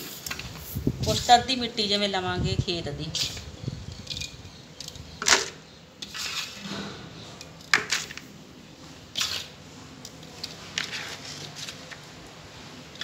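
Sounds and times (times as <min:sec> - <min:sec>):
soil rustling in tub: 0:06.0 - 0:06.7, 0:10.3 - 0:12.2.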